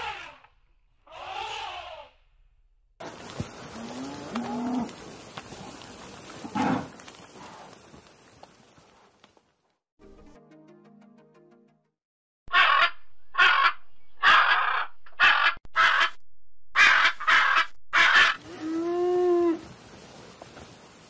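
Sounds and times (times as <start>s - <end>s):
cow mooing: 3.7s - 5.0s, 18.4s - 19.6s
macaws squawking: 12.5s - 16.2s, 16.8s - 18.4s.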